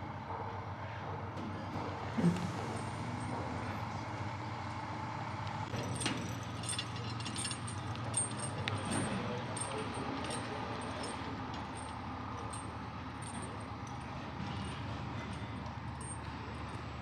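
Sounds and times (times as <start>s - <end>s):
crane engine running: 0.0s - 17.0s
light metallic clinks: 5.7s - 17.0s.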